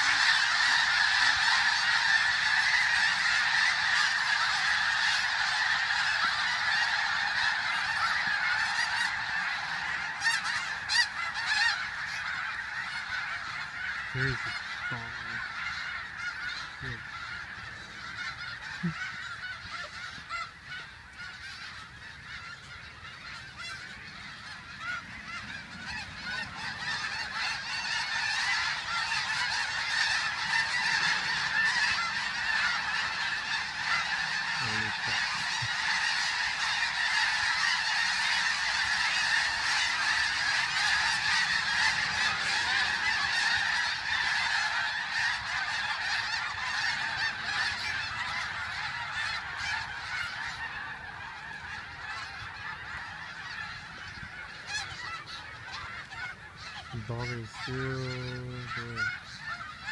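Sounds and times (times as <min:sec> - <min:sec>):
flock of geese honking: 0:00.0 - 0:59.9.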